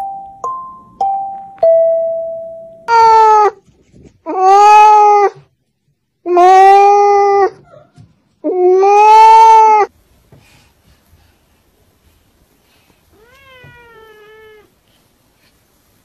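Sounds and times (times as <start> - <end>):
cat meowing: 2.9 - 3.6, 4.3 - 5.4, 6.3 - 9.9, 13.1 - 14.7.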